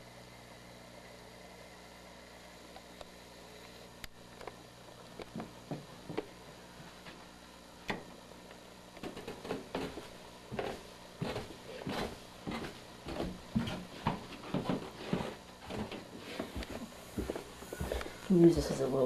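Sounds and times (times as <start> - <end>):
steady low hum: 0.0 - 19.0
footsteps and handling thumps: 5.2 - 7.3, 9.0 - 18.8.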